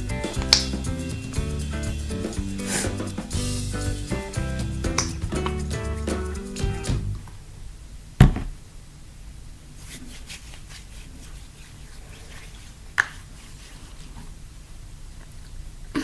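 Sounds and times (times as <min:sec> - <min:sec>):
background music: 0:00.0 - 0:07.2
lotion rubbing between hands: 0:02.6 - 0:03.2, 0:09.8 - 0:14.4
sharp click: 0:05.0 - 0:05.2
loud thump: 0:08.2 - 0:08.6.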